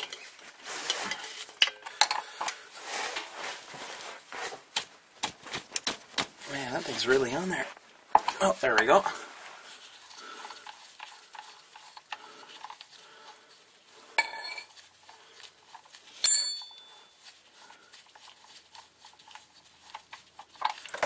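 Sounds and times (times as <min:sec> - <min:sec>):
threads rubbing and ticking: 0:00.0 - 0:16.2, 0:16.8 - 0:21.0
sharp metallic clinks: 0:16.2 - 0:17.1.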